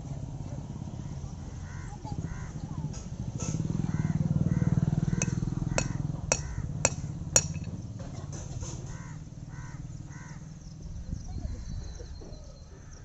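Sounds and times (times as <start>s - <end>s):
crows cawing: 1.0s - 2.6s, 3.9s - 7.2s, 8.9s - 10.5s
hammer striking metal shoe: 5.2s - 7.8s.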